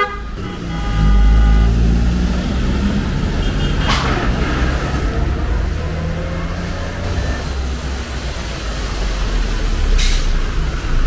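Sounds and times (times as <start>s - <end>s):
bus horn: 0.0s - 4.3s
bus engine rumbling: 0.0s - 11.0s.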